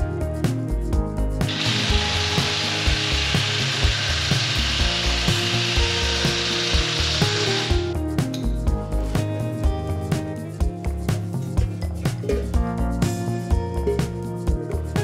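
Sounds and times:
background music: 0.0 - 15.0
rasping tool noise: 1.5 - 7.8.

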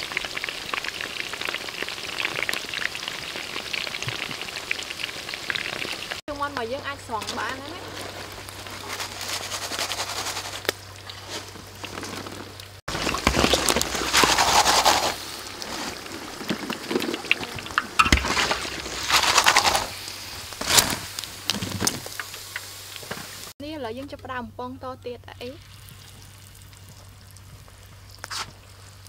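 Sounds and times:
hot oil sizzling in a wok: 0.0 - 8.8, 14.2 - 23.6, 25.4 - 29.0.

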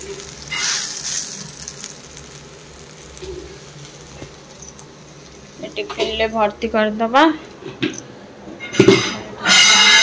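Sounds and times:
food sizzling in a wok: 0.0 - 6.7.

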